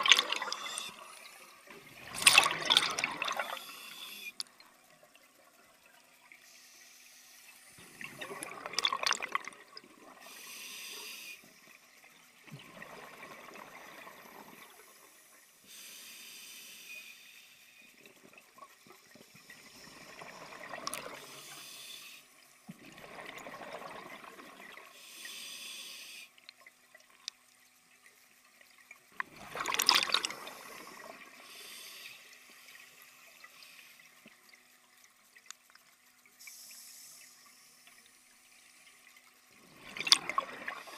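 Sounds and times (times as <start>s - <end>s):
underwater bubble bursts: 0.0s - 1.1s, 1.7s - 3.7s, 7.8s - 10.2s, 39.6s - 40.9s
regulator inhalation hiss: 3.5s - 4.4s, 10.2s - 11.6s, 15.2s - 17.8s, 21.3s - 22.3s, 25.0s - 26.3s, 30.5s - 32.3s, 36.4s - 37.8s.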